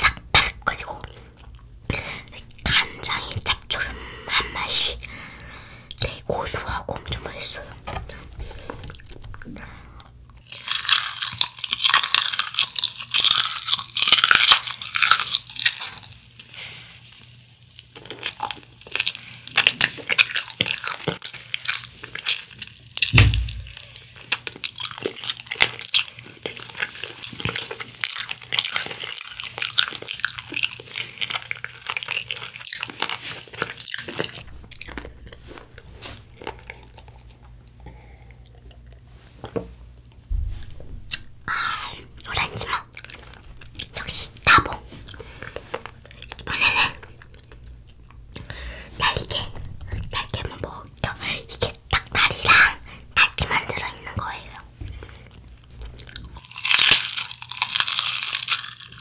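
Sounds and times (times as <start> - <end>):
crunching and chewing fried chicken: 4.6 - 39.6, 41.1 - 59.0
dull thump: 23.1 - 23.8, 40.3 - 41.1.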